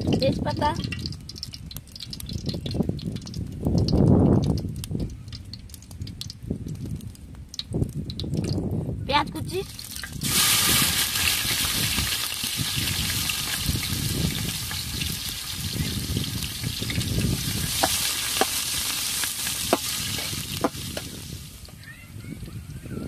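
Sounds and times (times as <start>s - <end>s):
onion sizzling in hot oil: 0.0s - 6.7s, 7.4s - 21.8s
utensil clicking against pan: 0.8s - 6.4s.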